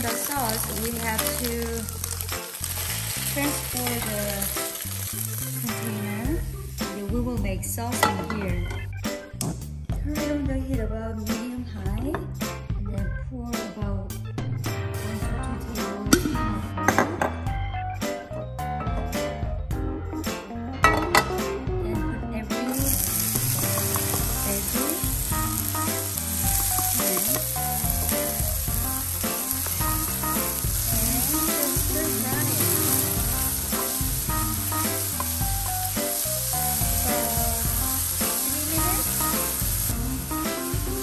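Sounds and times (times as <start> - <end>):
vegetables sizzling in hot oil: 0.0 - 6.9, 22.7 - 41.0
background music: 0.0 - 41.0.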